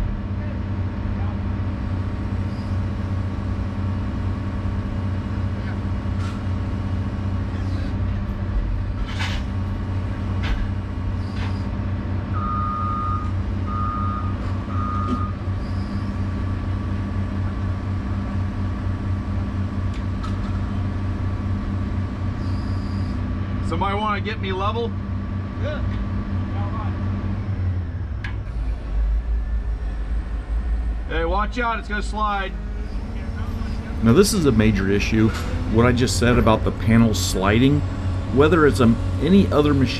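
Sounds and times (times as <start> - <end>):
excavator diesel engine running: 0.0 - 39.9
backup alarm beeping: 12.4 - 15.4.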